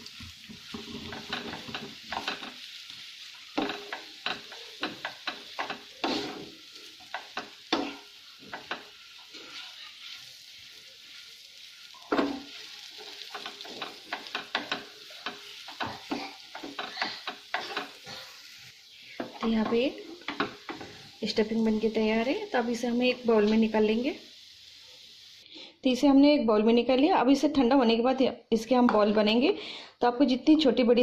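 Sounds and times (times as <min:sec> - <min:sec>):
wooden spatula scraping pan: 0:00.0 - 0:11.2, 0:11.9 - 0:21.1
light oil sizzle: 0:00.0 - 0:26.0.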